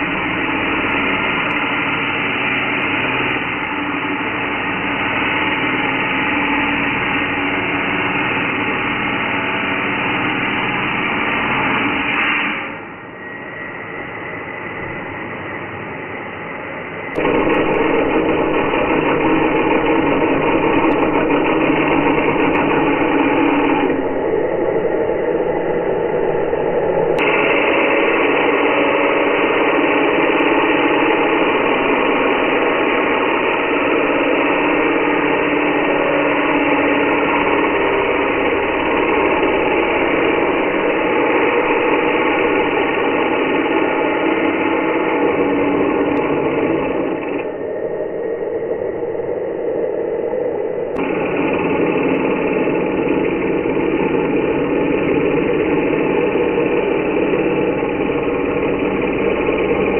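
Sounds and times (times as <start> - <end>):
angle grinder cutting metal: 17.2 - 24.0.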